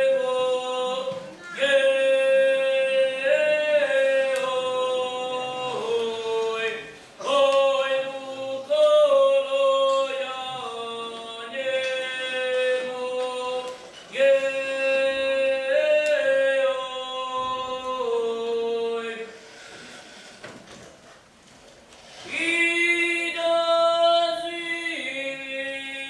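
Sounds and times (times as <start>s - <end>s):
boy singing unaccompanied: 0.0s - 19.3s.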